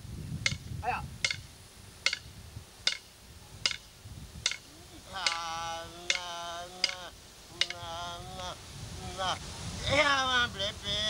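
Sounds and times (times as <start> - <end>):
sharp percussive beats: 1.2 - 7.9
man singing long notes: 4.7 - 11.0.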